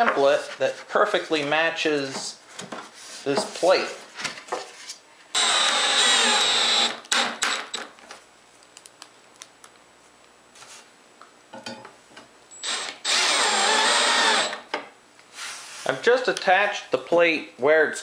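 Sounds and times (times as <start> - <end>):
cordless drill driving screws: 5.4 - 7.8, 12.6 - 14.6.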